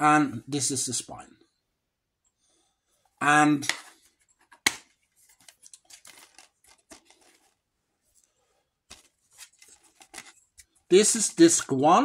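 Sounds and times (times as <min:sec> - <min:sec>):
faint rustling and small clicks: 0:03.8 - 0:10.9
plastic case snapping open: 0:04.5 - 0:04.9.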